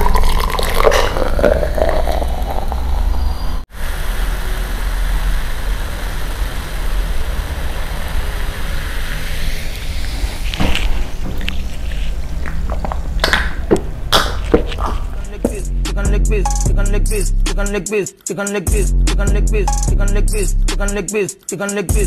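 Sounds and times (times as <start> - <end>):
soda pouring and fizzing: 0.0 - 15.2.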